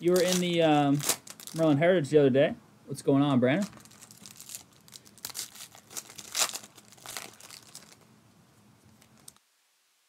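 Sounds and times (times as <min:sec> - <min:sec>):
plastic wrapping crinkling and tearing: 0:00.0 - 0:01.8, 0:03.6 - 0:08.1, 0:08.9 - 0:09.4.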